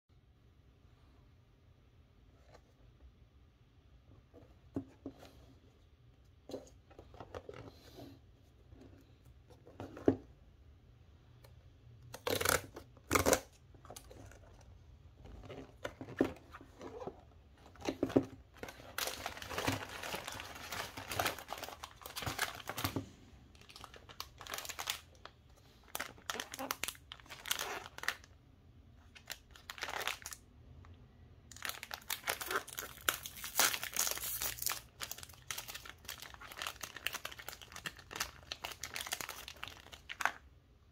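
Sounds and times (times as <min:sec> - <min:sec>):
plastic wrappers crinkling: 0:15.3 - 0:28.3, 0:29.1 - 0:30.4, 0:31.5 - 0:40.5.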